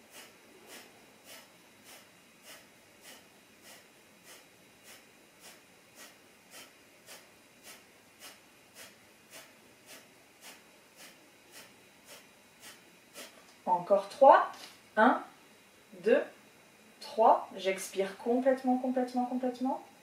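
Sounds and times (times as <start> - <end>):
forceful nasal exhalations: 0.1 - 13.4.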